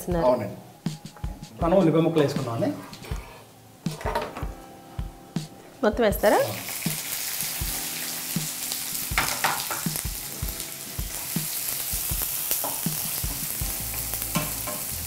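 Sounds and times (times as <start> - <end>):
onions sizzling in hot oil: 6.2 - 15.0
spatula scraping and tapping pan: 14.3 - 14.9.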